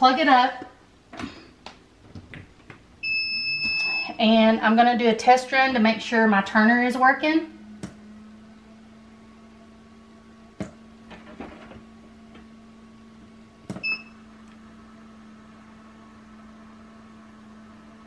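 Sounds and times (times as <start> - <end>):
incubator electric hum: 0.0 - 18.0
short beep: 3.0 - 4.2, 13.8 - 14.2.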